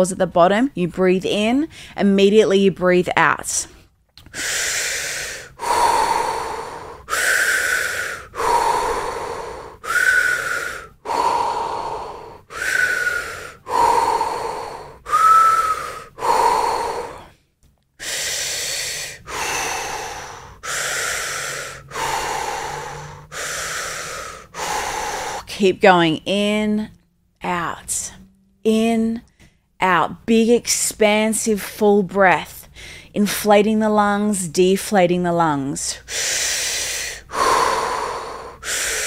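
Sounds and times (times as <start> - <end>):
woman breathing quickly: 1.7 - 2.0, 4.2 - 25.5, 32.6 - 33.2, 36.0 - 39.0.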